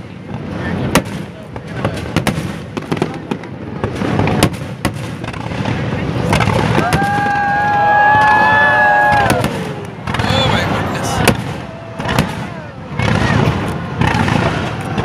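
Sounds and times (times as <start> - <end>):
fireworks bursting with bangs: 0.0 - 15.0
crowd saying ooh: 6.6 - 15.0.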